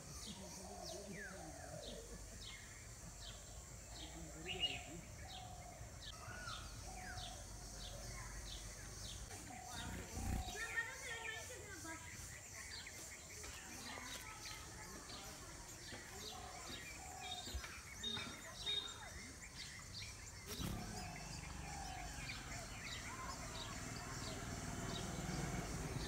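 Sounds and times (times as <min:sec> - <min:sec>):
small birds chirping: 0:00.0 - 0:26.0
bird nestlings begging: 0:02.5 - 0:11.4, 0:16.6 - 0:26.0.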